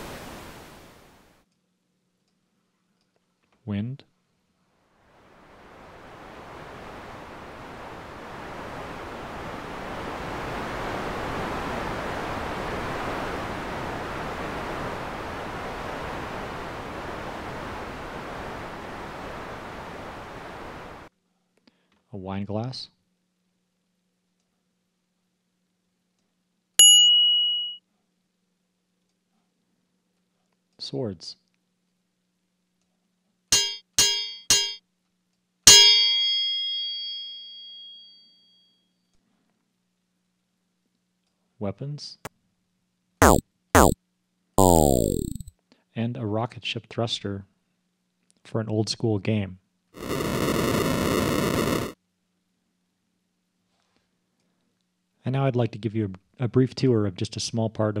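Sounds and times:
synthesized wind noise: 0:05.2 - 0:21.0, 0:50.0 - 0:52.0
ringing blade hit: 0:33.5 - 0:34.8, 0:35.7 - 0:38.2
short metallic clang: 0:33.6 - 0:34.8, 0:35.7 - 0:38.3.

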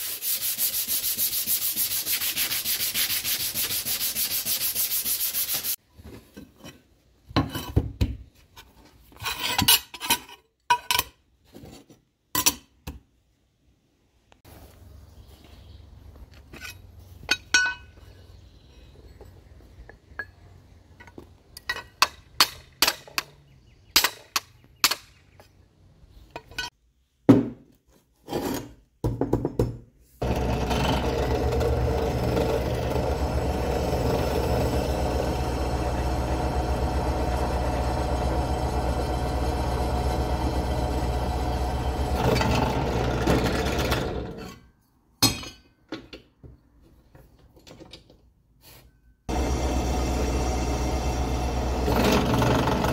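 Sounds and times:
drill press running: 0:30.2 - 0:44.4, 0:49.3 - 0:52.9.

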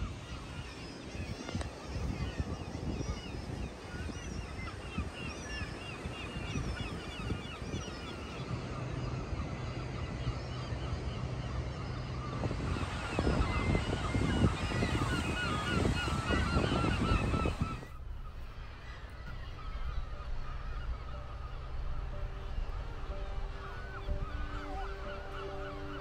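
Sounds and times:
birds chirping: 0:00.0 - 0:26.0
seabirds squawking: 0:00.0 - 0:26.0
wind on microphone: 0:00.0 - 0:26.0
low steady hum: 0:06.0 - 0:26.0
low rumble: 0:17.2 - 0:26.0.

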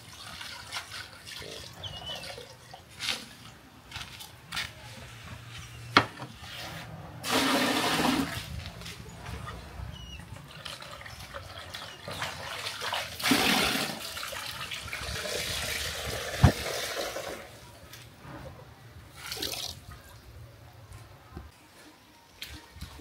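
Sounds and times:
water running and splashing: 0:00.0 - 0:03.4, 0:10.3 - 0:17.5.

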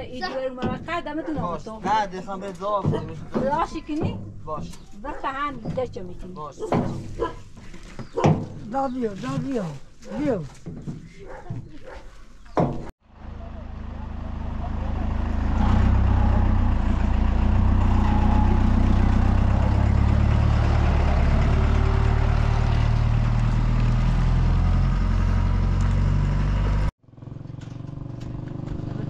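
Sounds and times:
truck engine idling: 0:13.1 - 0:27.6.

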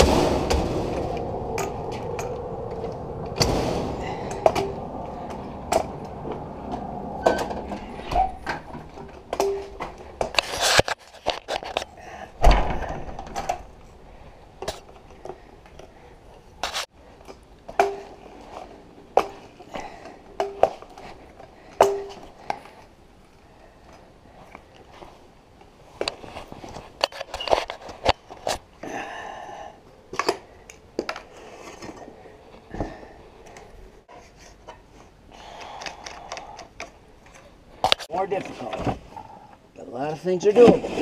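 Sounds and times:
loud hits: 0:00.0 - 0:10.0
objects knocking and clattering: 0:06.7 - 0:13.8.

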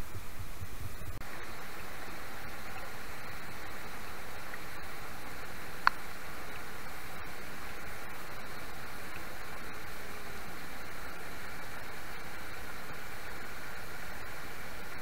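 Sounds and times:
low rumbling: 0:00.0 - 0:09.9
flowing river water: 0:00.4 - 0:15.0.

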